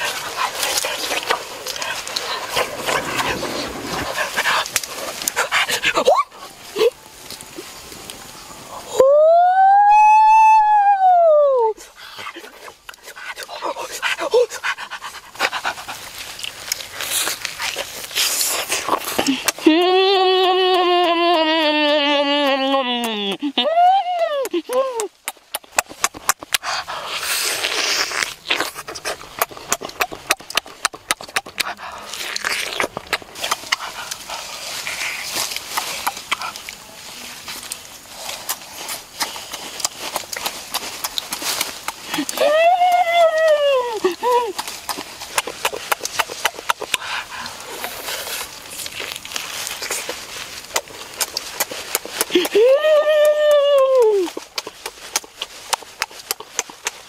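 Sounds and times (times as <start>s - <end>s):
lip smacks and chewing: 0.0s - 7.0s, 11.8s - 23.6s, 24.2s - 57.0s
sucking and slurping: 0.0s - 9.0s, 11.7s - 23.6s, 24.4s - 52.6s
crunchy clicks of biting meat: 14.9s - 22.0s, 24.4s - 36.8s, 37.7s - 52.6s, 53.2s - 57.0s.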